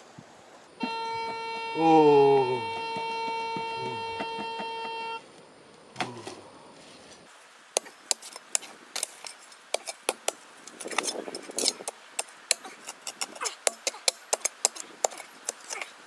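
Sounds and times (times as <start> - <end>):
shovel scraping loose soil: 6.9 - 16.0
shovel striking stony soil: 7.8 - 16.0.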